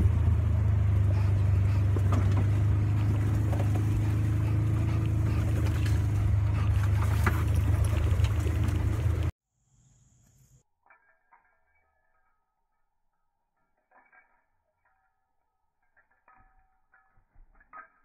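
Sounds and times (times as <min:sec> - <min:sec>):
off-road vehicle engine running: 0:00.0 - 0:09.4.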